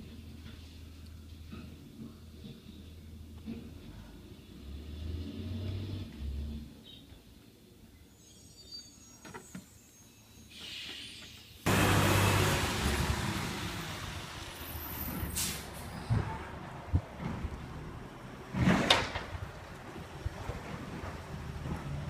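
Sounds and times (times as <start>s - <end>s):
garbage truck engine running: 11.7s - 22.0s
air brake hiss: 15.1s - 16.0s.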